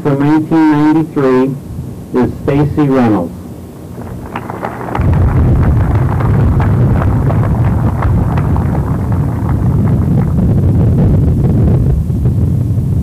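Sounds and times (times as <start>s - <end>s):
wind buffeting microphone: 3.8s - 13.0s.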